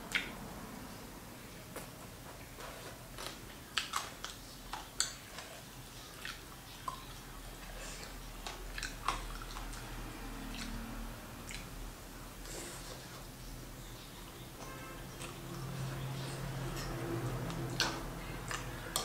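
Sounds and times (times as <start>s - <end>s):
chewing crunchy fried food: 1.8s - 11.8s, 15.0s - 19.0s.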